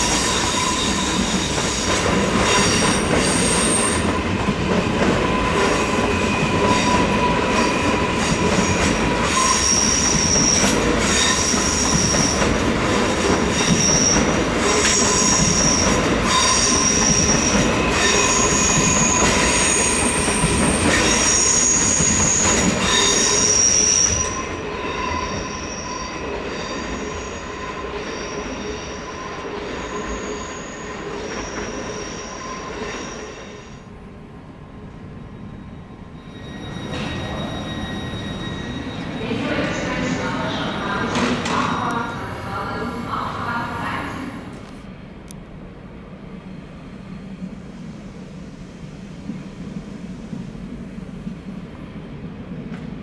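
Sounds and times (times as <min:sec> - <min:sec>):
train wheels squealing: 0:00.0 - 0:12.6, 0:13.2 - 0:33.9, 0:35.1 - 0:40.8.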